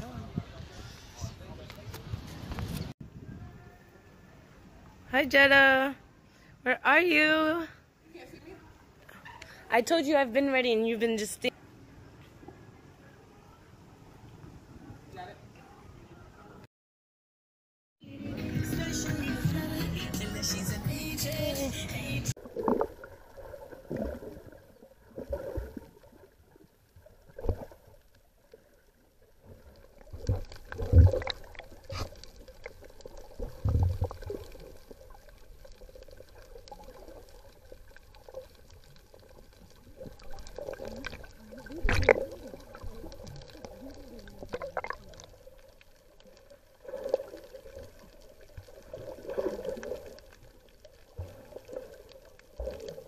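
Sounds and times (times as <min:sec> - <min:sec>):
water gurgling and sloshing: 0:22.3 - 0:53.0.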